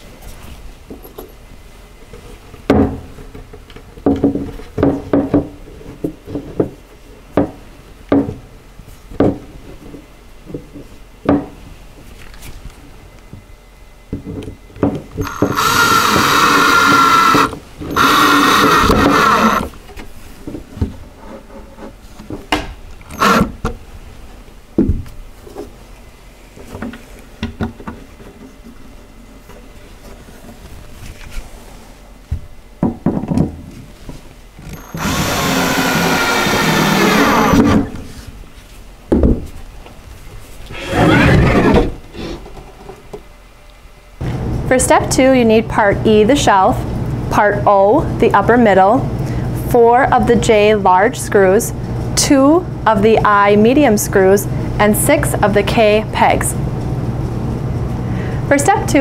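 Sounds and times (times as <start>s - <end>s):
cordless drill driving screws: 15.2s - 19.7s, 23.1s - 23.5s, 34.7s - 37.9s.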